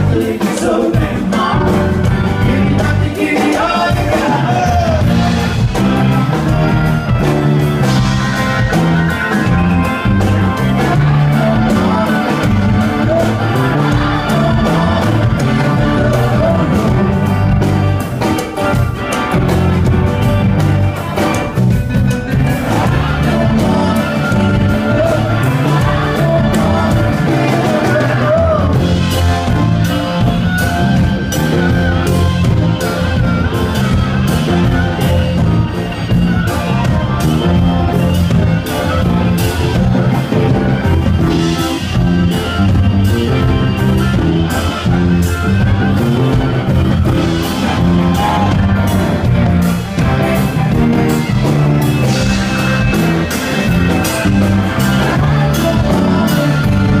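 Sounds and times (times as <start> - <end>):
man singing: 0.0 - 7.2, 10.5 - 17.7, 22.4 - 29.6, 54.6 - 57.0
live pop-rock band: 0.0 - 57.0.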